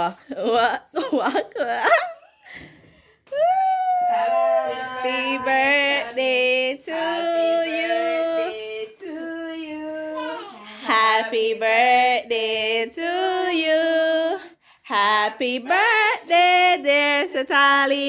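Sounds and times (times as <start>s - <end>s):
women and children singing: 4.3s - 18.0s.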